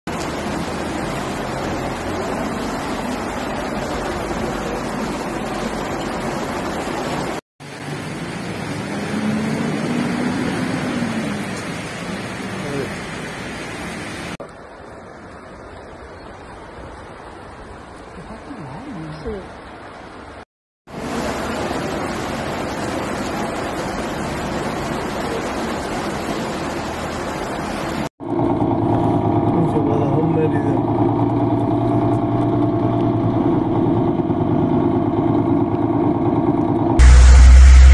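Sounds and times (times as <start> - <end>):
heavy rain: 0.1 - 31.4, 36.9 - 37.9
floodwater rushing and splashing: 0.1 - 33.3
low engine hum: 21.0 - 37.9.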